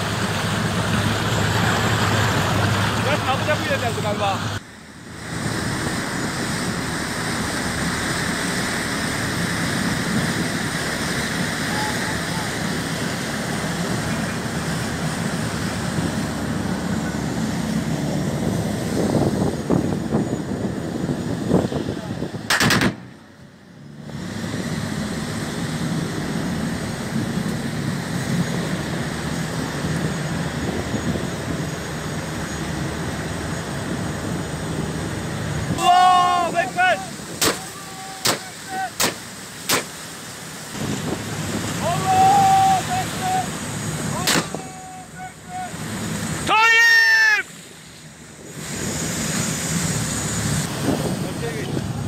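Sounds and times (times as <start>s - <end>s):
water churning past a boat hull: 0.0s - 52.0s
wind: 0.0s - 52.0s
gunshots in quick succession: 22.5s - 23.1s.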